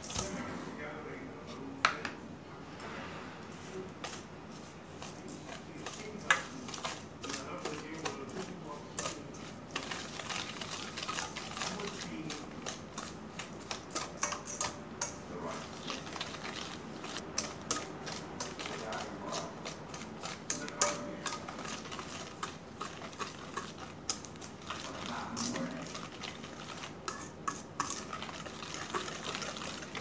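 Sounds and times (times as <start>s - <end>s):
whisk beating in metal bowl: 4.0s - 30.0s.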